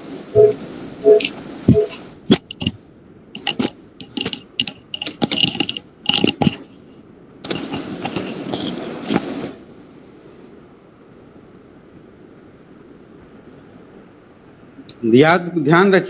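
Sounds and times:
steady hiss: 0.0s - 16.0s
handling clicks and rattles: 1.2s - 2.8s, 3.4s - 6.8s, 7.4s - 9.3s.

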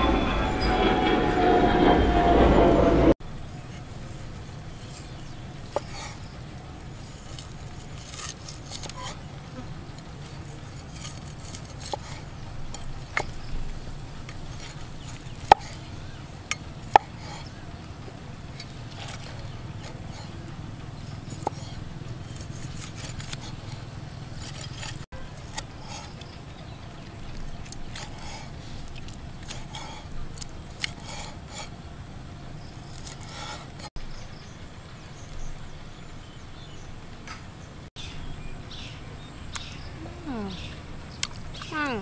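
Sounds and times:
low insect-like buzz: 0.0s - 25.1s
cleaver chopping meat on wood: 16.5s - 17.4s.

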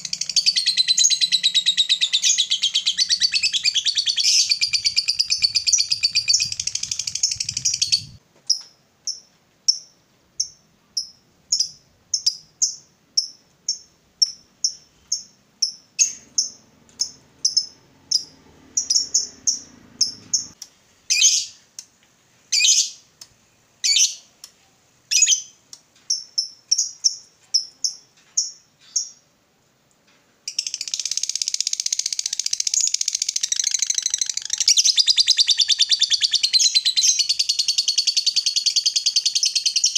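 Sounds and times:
lovebird chattering and chirping: 0.0s - 21.6s, 30.5s - 39.9s.

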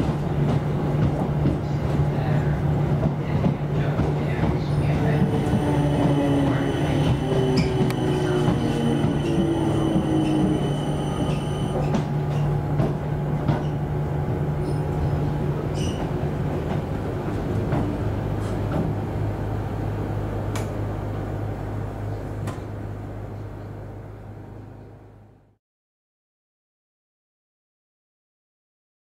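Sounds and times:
train motor hum: 0.0s - 25.5s
high whine: 5.2s - 12.0s.

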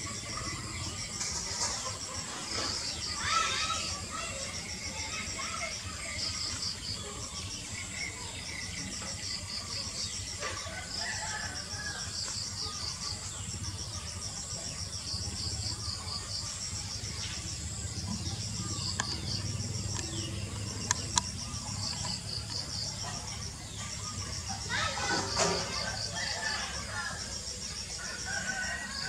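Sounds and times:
insects chirping: 0.0s - 29.0s
sharp clicks: 18.9s - 22.6s.

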